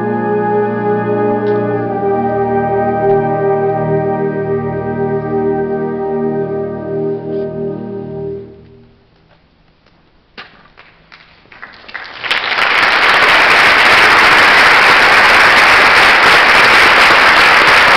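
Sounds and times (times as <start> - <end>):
audience applause: 10.8 - 17.9.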